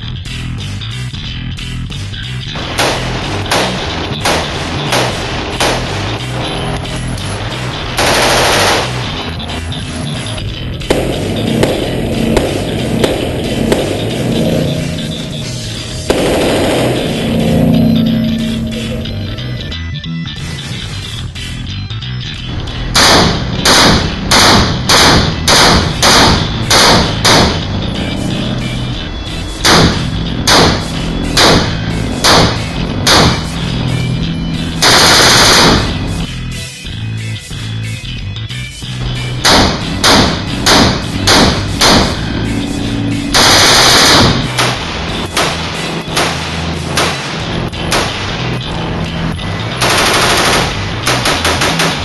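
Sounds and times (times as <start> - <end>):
background music: 0.0 - 52.0
rifle shots echoing indoors: 2.6 - 6.1, 8.0 - 9.1, 22.9 - 27.6, 29.6 - 30.8, 31.4 - 33.4, 34.7 - 36.0, 39.4 - 42.2, 43.4 - 48.3, 49.8 - 52.0
rifle single shots: 2.6 - 6.1
full-auto gunfire burst: 2.6 - 6.2, 7.9 - 9.2, 22.9 - 27.6, 29.6 - 30.8, 31.4 - 33.4, 34.8 - 36.0, 39.4 - 42.2, 43.4 - 48.3, 49.8 - 52.0.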